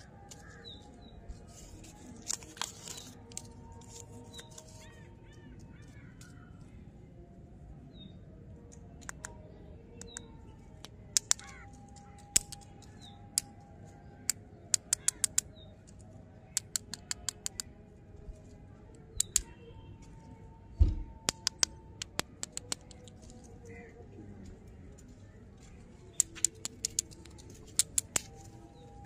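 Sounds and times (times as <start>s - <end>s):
faint birds chirping: 0.0s - 29.0s
candy bars clicking together: 10.0s - 13.6s, 14.2s - 15.6s, 16.5s - 17.7s, 19.2s - 19.5s, 21.2s - 23.4s, 26.1s - 28.5s
loud thump: 20.8s - 21.1s.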